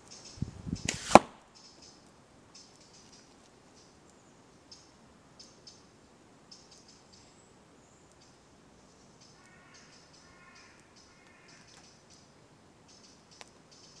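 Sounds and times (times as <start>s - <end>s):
slingshot sharp crack: 0.8s - 1.5s.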